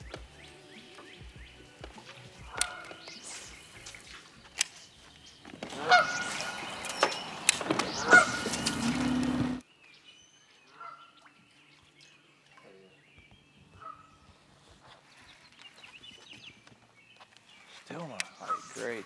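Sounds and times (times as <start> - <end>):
waterfowl honking: 1.0 - 4.0, 5.6 - 9.6, 10.8 - 11.2, 13.8 - 14.2, 18.3 - 19.0
sharp clicks: 1.8 - 9.6.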